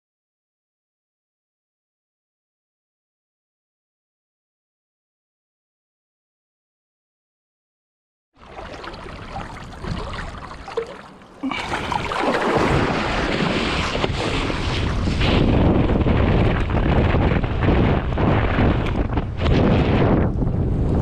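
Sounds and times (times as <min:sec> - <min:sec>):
water rushing and splashing: 0:08.4 - 0:15.4
wind buffeting microphone: 0:08.5 - 0:10.8, 0:11.6 - 0:21.0.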